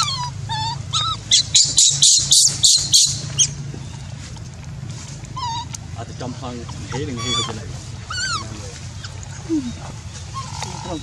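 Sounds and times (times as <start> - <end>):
baby monkey crying: 0.0 - 3.6, 5.4 - 5.8, 6.7 - 11.0.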